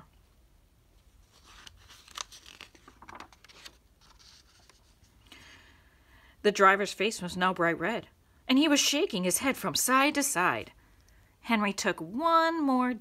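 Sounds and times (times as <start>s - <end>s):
paper page rustling: 1.0s - 5.2s.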